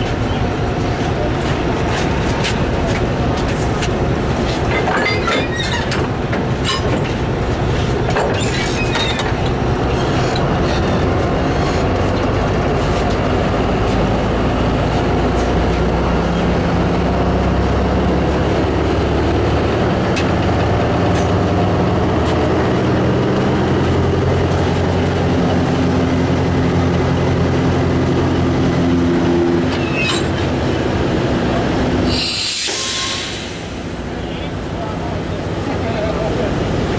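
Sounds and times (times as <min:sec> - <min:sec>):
diesel locomotive idling: 0:00.0 - 0:36.9
metallic clanks: 0:04.7 - 0:07.3.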